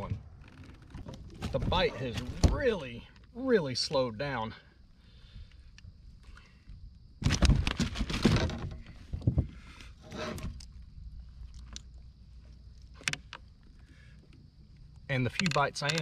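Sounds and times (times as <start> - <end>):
knocks and rustles in kayak: 0.0 - 2.9, 7.2 - 14.5.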